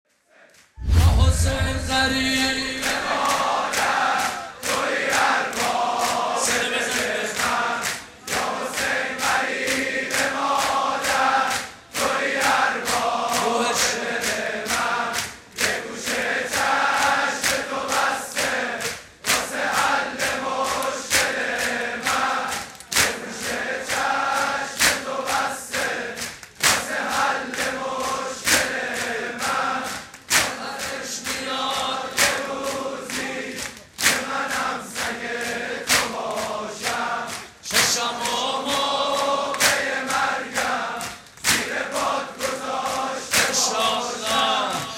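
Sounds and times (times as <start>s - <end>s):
crowd of men chanting: 0.3s - 44.9s
hands slapping bare chests: 32.2s - 35.2s, 39.2s - 42.0s, 42.9s - 43.7s.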